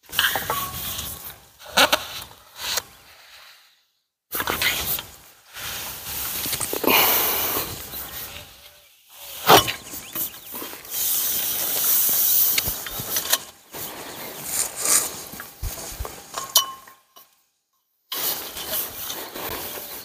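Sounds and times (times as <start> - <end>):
metal pole sections scraping: 0.1 - 2.8.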